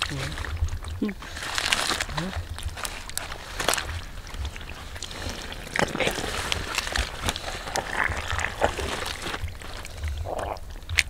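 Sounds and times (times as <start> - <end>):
hands squelching in wet mud: 0.0 - 11.0
wet clicks and splats: 0.0 - 11.0.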